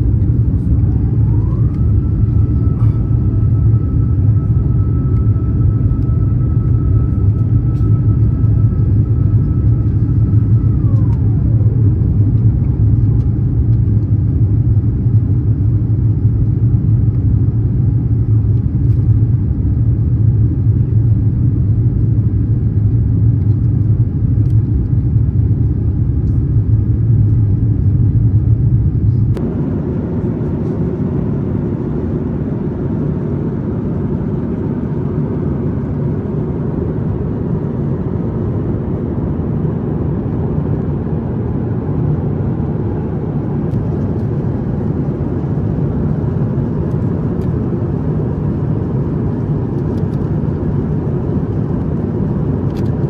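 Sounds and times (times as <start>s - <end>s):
high whine gliding down: 0.0s - 14.1s
airliner cabin engine rumble: 0.0s - 53.0s.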